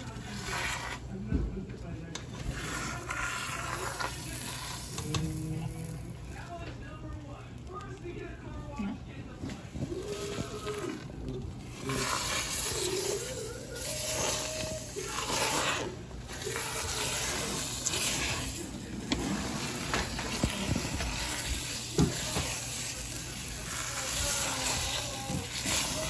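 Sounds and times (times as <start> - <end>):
spatula scraping a pot: 0.0 - 1.2, 2.2 - 6.5, 9.5 - 26.0
egg sizzling in hot oil: 11.7 - 26.0.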